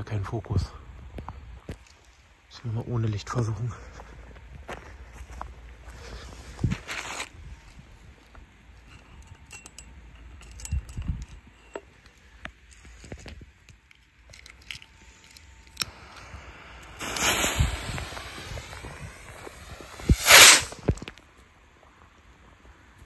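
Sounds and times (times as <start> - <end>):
footsteps on grass and leaves: 3.9 - 7.9
fuse hissing and sputtering: 15.8 - 21.0
firework rocket whoosh: 15.8 - 21.1.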